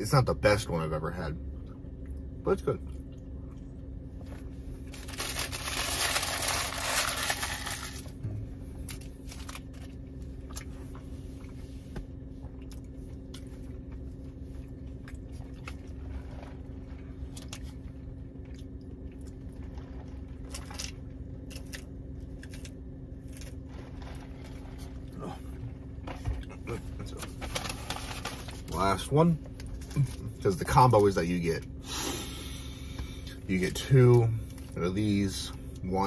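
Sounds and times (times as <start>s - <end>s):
low hum inside car: 0.0s - 36.0s
paper wrapper crumpling: 4.9s - 8.2s, 8.9s - 9.9s, 27.1s - 28.8s.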